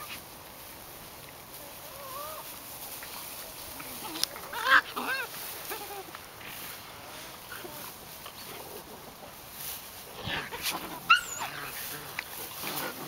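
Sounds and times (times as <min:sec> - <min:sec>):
faint dog whines: 0:01.9 - 0:02.5
puppy squealing and yelping: 0:04.5 - 0:05.9, 0:10.6 - 0:11.8.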